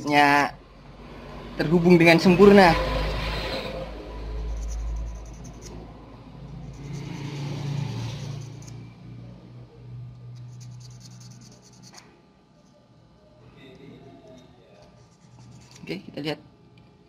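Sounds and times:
sandpaper scratching metal: 0:04.4 - 0:05.8, 0:10.4 - 0:12.0.

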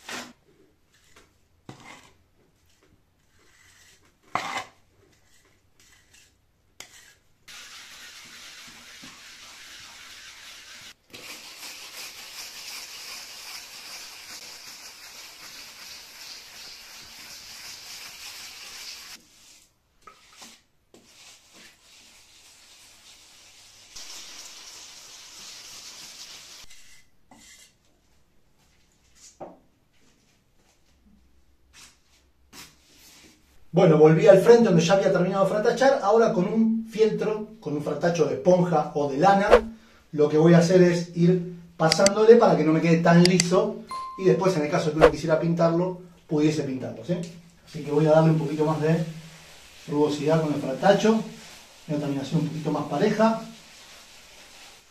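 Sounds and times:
wooden float scraping render: 0:00.0 - 0:24.5, 0:25.5 - 0:27.9, 0:47.6 - 0:54.9.

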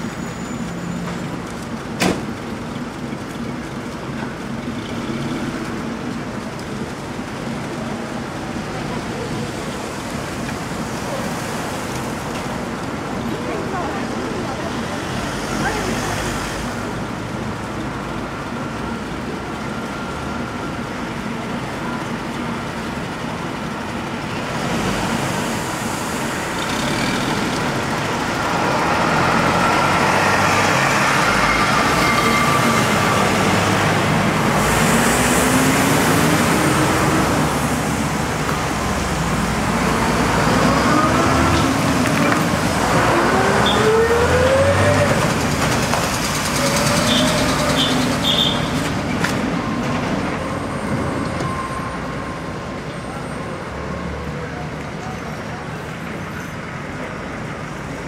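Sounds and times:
cars driving past: 0:24.6 - 0:55.1.

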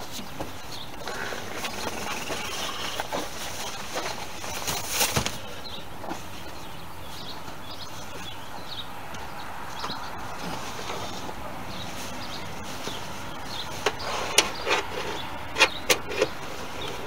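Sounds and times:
fabric rustling and flapping: 0:01.5 - 0:06.3.

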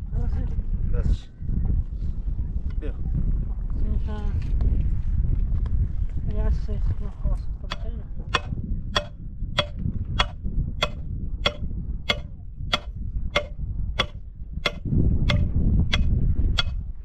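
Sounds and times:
low rumble: 0:01.6 - 0:17.0
clock-like ticking: 0:08.4 - 0:16.7.

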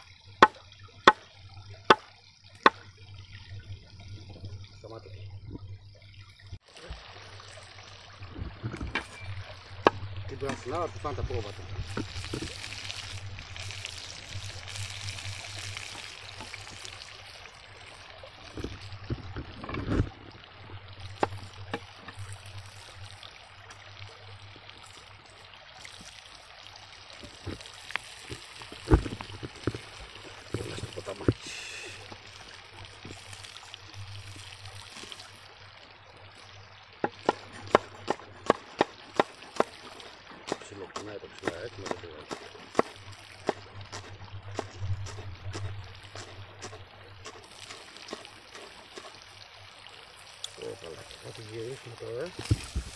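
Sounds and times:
steak sizzling in a pan: 0:11.3 - 0:17.2.

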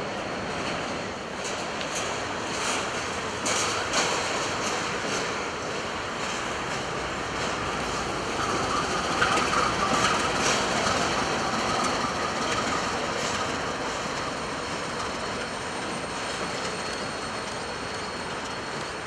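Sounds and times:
train wheels rumbling on rail: 0:00.0 - 0:19.0
wheels clicking over rail joints: 0:01.4 - 0:19.0
thin wheel squeal: 0:14.0 - 0:19.0.

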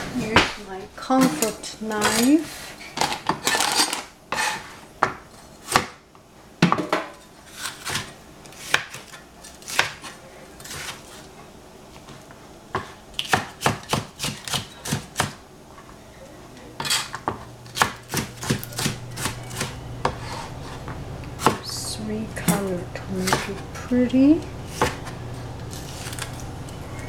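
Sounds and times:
cleaver chopping on cutting board: 0:12.8 - 0:15.4, 0:17.8 - 0:20.3, 0:21.4 - 0:21.6.

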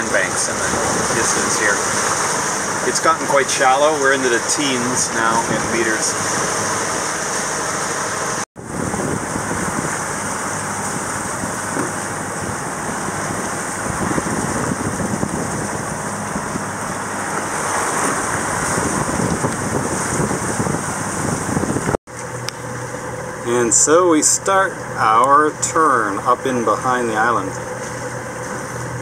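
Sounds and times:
water washing past a boat: 0:00.0 - 0:29.0
wind rushing over microphone: 0:08.3 - 0:22.0.

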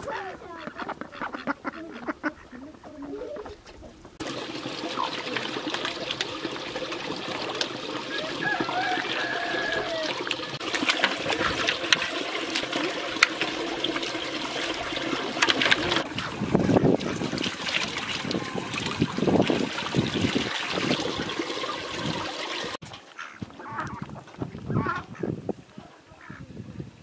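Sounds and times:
duck calls: 0:00.0 - 0:03.5, 0:23.2 - 0:24.0
hands splashing in bowls: 0:04.2 - 0:22.8
stream water trickling: 0:04.2 - 0:24.7.

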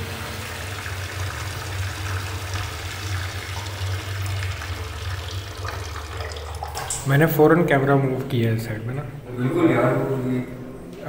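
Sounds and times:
water running from tap into sink: 0:00.0 - 0:07.3.

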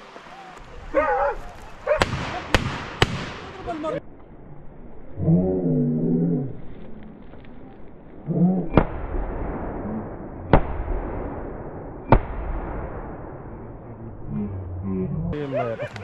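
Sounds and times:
gunshots with echo: 0:01.9 - 0:03.7, 0:08.7 - 0:13.9.

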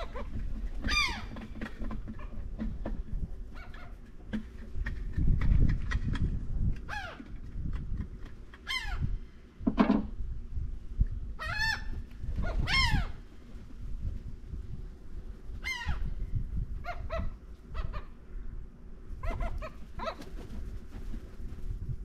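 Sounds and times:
bird cries falling in pitch: 0:00.8 - 0:01.5, 0:11.4 - 0:13.2.

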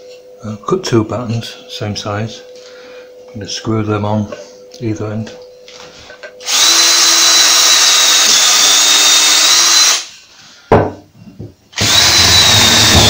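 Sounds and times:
cordless drill boring through wood: 0:06.4 - 0:10.1, 0:11.8 - 0:13.0.

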